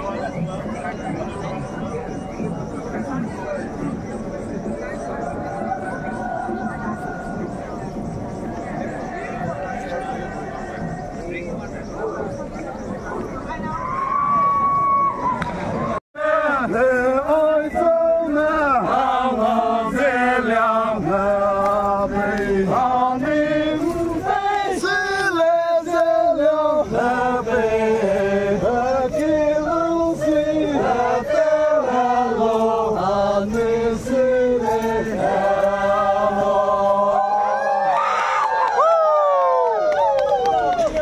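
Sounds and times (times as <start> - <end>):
men chanting a folk song: 2.7 - 12.6, 16.2 - 38.1.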